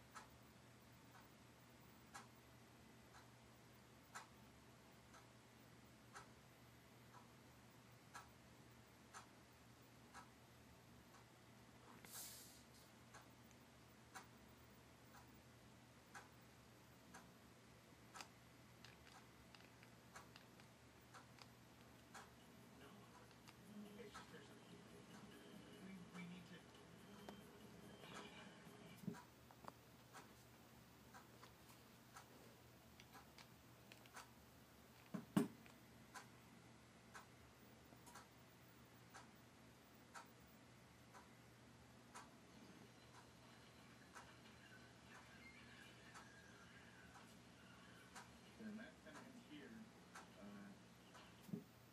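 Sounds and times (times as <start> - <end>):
faint regular ticking: 0.0 - 51.9
steady low hum: 0.0 - 51.9
faint clicks: 18.0 - 22.4, 31.1 - 36.4.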